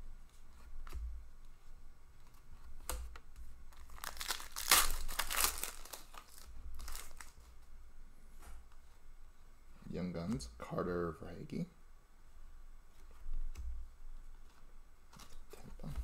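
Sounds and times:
plastic crinkling and rustling: 0:03.7 - 0:07.6.

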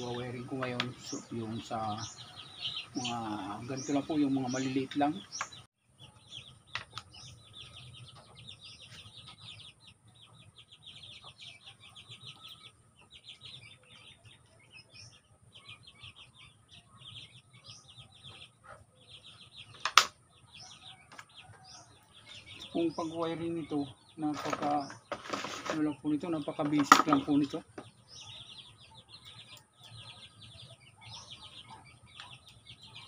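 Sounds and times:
chicks peeping: 0:00.0 - 0:33.0.

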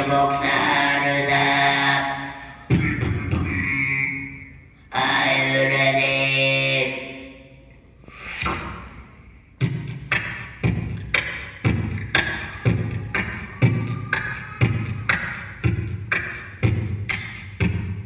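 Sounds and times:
humming vocal tones: 0:00.0 - 0:07.2, 0:08.0 - 0:18.0
child beatboxing: 0:02.7 - 0:04.1, 0:08.3 - 0:09.0, 0:09.6 - 0:18.0.

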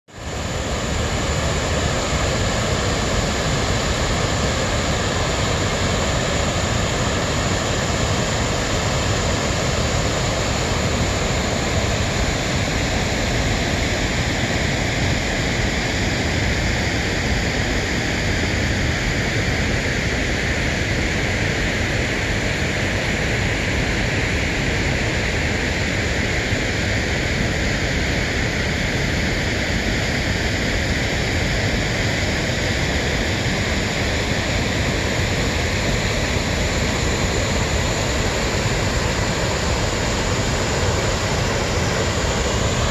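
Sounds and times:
waterfall rushing: 0:33.2 - 0:42.9.

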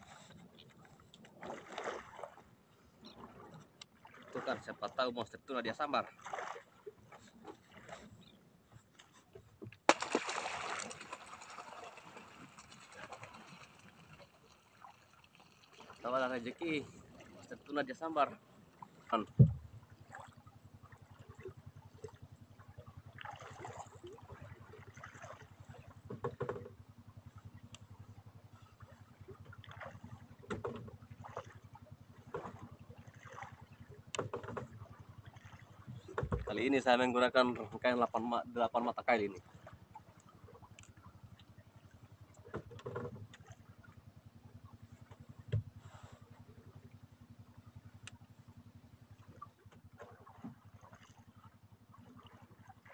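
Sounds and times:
boat motor running: 0:00.0 - 0:52.9.

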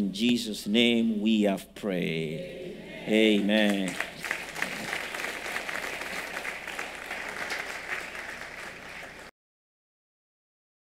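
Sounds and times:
crowd applauding: 0:03.1 - 0:09.3.

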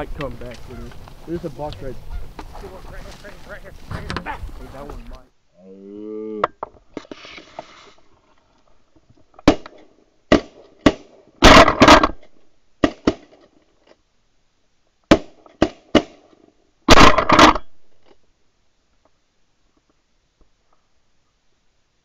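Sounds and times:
shotgun shots: 0:09.4 - 0:12.2, 0:16.9 - 0:17.7.

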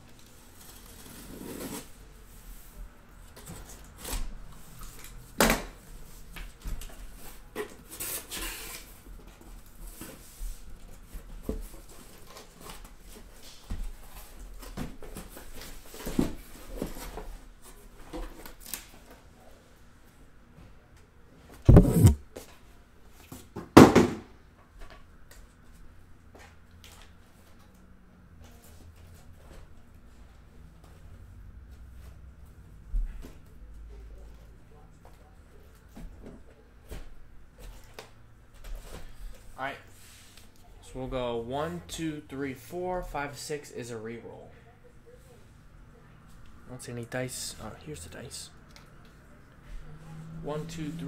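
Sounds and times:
cardboard rustling and scraping: 0:00.2 - 0:02.0, 0:21.6 - 0:22.2
box cutter slitting tape: 0:21.7 - 0:22.2
loud thumps: 0:21.7 - 0:22.2.

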